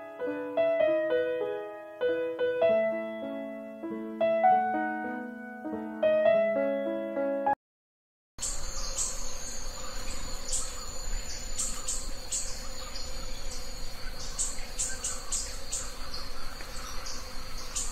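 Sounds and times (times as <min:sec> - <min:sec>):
high insect drone: 0:08.4 - 0:17.9
insects chirping: 0:08.4 - 0:17.9.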